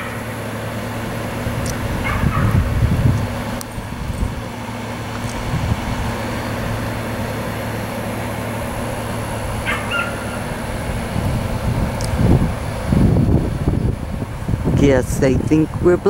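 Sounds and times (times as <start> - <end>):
constant low hum: 0.0 - 16.0.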